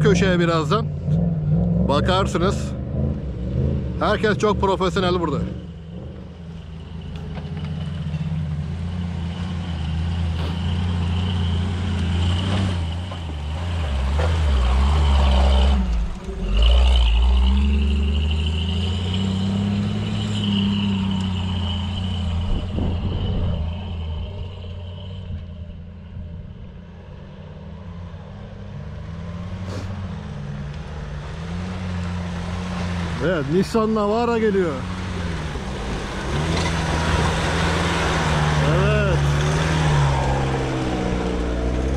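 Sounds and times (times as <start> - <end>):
another vehicle engine: 0.0 - 41.9
off-road vehicle engine passing: 0.0 - 41.9
high whine: 15.9 - 27.0.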